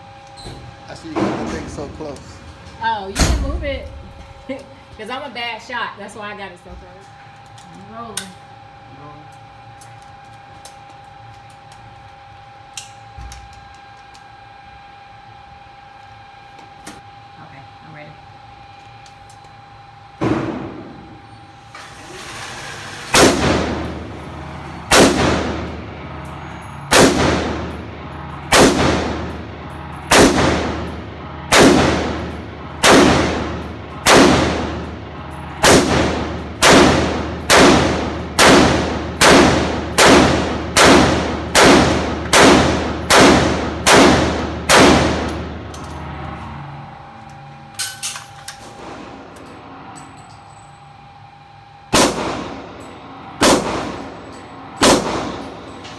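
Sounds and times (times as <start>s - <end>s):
rifle shots echoing indoors: 23.1s - 24.1s, 24.9s - 25.8s, 26.9s - 29.4s, 30.0s - 45.6s, 51.9s - 52.8s, 53.4s - 54.2s, 54.8s - 55.7s.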